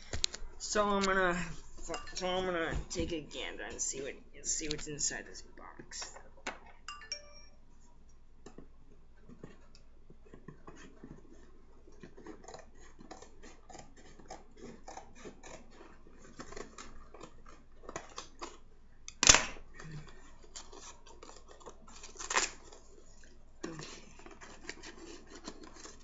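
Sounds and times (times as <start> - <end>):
scissors cutting cardboard: 9.2 - 26.0.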